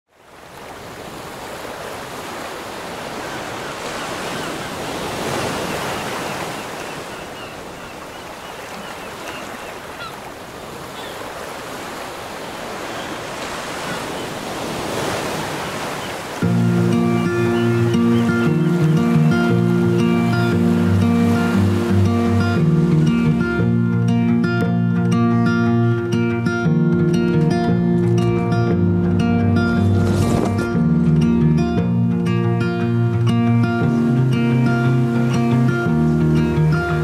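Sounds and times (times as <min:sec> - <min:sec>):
ocean surf breaking: 0:00.3 - 0:24.6, 0:27.0 - 0:31.6.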